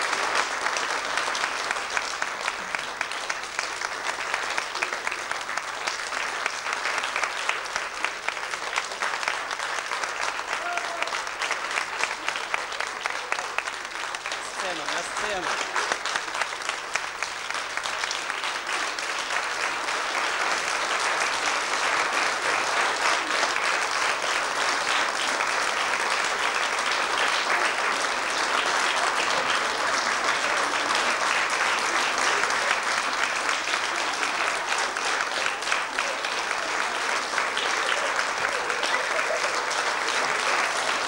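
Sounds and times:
audience applauding: 0.0 - 41.0.

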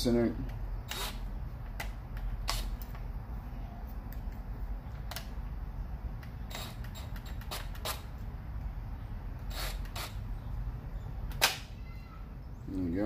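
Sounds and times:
drill clicks and knocks: 6.2 - 8.1, 9.4 - 10.2.

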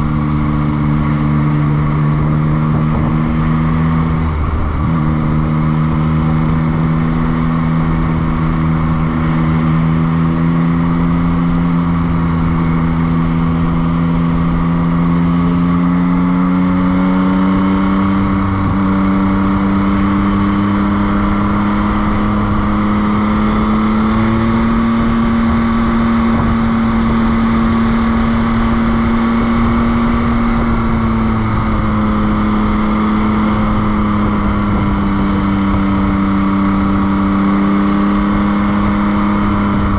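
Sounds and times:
motorcycle engine accelerating: 0.0 - 39.9
steady rushing noise: 0.0 - 39.9.

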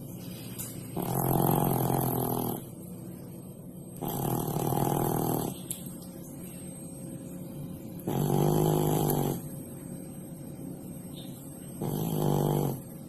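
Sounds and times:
cat snoring: 1.0 - 2.7, 4.0 - 5.6, 8.1 - 9.4, 11.8 - 12.9.

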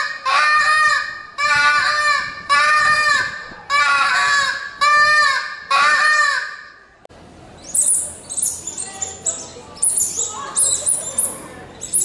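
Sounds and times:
high squeaks of a mouse call: 7.6 - 12.0.

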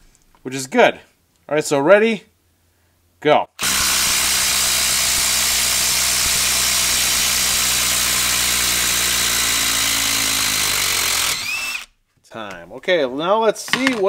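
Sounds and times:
impact driver hammering screw: 3.6 - 11.9.

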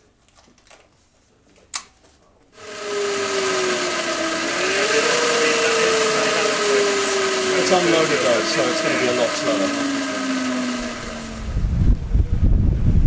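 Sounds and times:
electric motor whine: 2.6 - 12.1.

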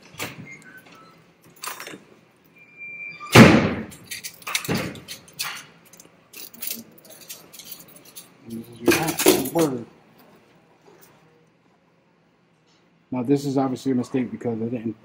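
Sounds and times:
brief high squeak: 2.6 - 3.5
metal clips clicking and clanking: 3.9 - 9.8.

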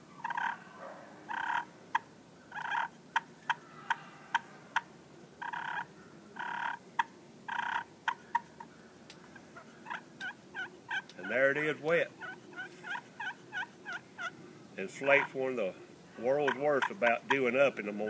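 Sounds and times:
turkey call yelp notes: 0.2 - 6.8, 12.2 - 14.3, 16.2 - 18.0
turkey call clucks: 0.2 - 15.4, 16.2 - 18.0.

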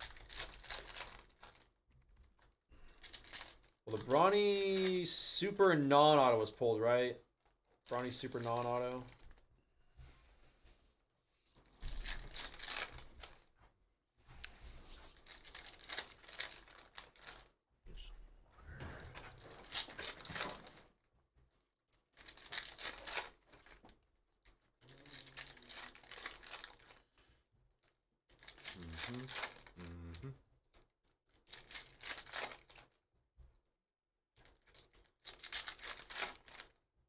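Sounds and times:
foil wrappers tearing and crinkling: 0.0 - 6.5, 7.4 - 9.4, 11.6 - 13.5, 15.0 - 17.5, 19.2 - 21.0, 22.0 - 27.0, 28.3 - 29.9, 30.7 - 33.0, 34.4 - 36.8.

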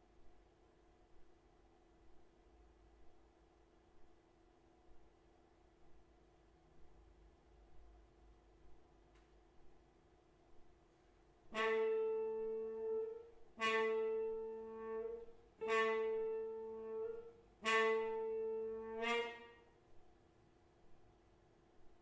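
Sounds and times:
trombone note: 11.5 - 19.7.

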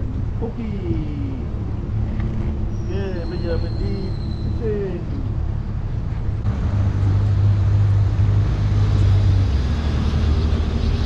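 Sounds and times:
boat motor humming: 0.0 - 11.0.

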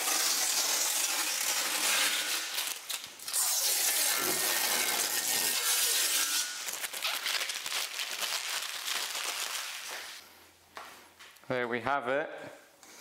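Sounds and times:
plastic film crinkling: 0.0 - 10.2.

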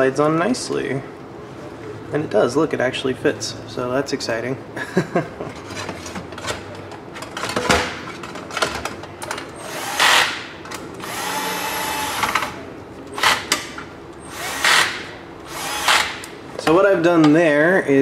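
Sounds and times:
cordless drill driving screws: 9.6 - 10.4, 11.0 - 12.5, 14.3 - 16.2.

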